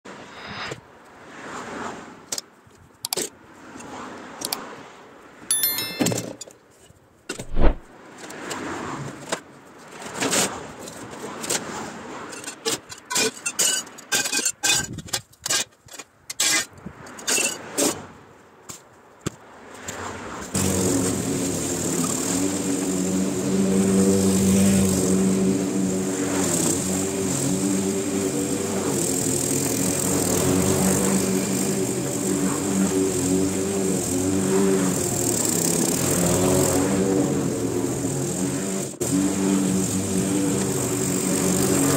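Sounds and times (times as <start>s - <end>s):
lawn mower engine running: 20.6s - 41.9s.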